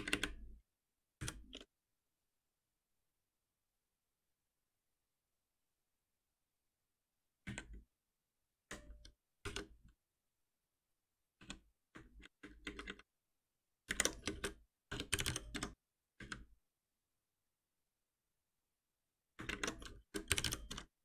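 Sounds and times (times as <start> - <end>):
typing on computer keyboard: 0.0 - 0.5, 11.4 - 13.1, 13.8 - 16.6, 19.4 - 21.0.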